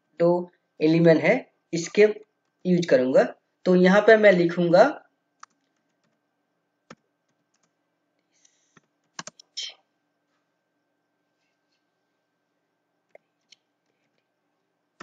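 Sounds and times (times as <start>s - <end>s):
keyboard keystrokes: 8.8s - 9.5s.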